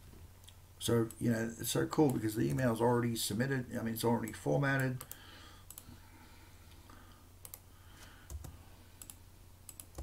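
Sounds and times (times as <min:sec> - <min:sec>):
low steady hum: 0:00.0 - 0:10.0
computer mouse clicks: 0:05.0 - 0:05.9, 0:07.4 - 0:07.6, 0:08.3 - 0:10.0.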